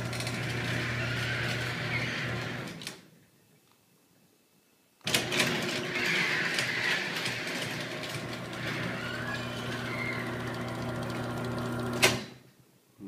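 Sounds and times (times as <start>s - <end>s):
motor hum: 7.8s - 12.0s.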